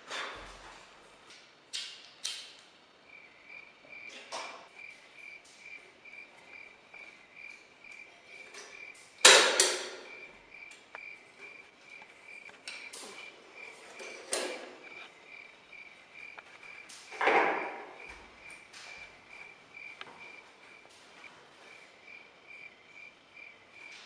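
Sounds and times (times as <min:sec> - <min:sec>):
crickets chirping: 0:00.1 - 0:24.0.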